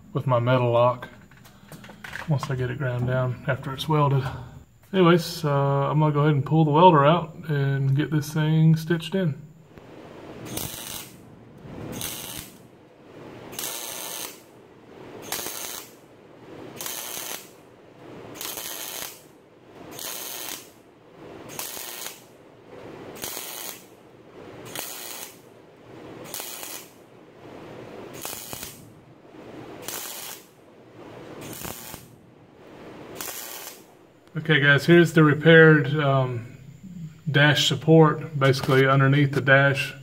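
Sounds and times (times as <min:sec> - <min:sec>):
welder arc bursts: 0:09.7 - 0:36.6.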